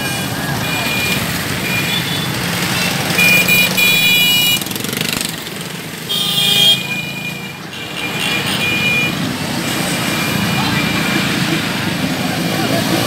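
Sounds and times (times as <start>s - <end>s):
vehicle horns honking: 0.0s - 5.0s, 6.1s - 9.3s
motorcycle and jeep engines: 0.0s - 13.0s.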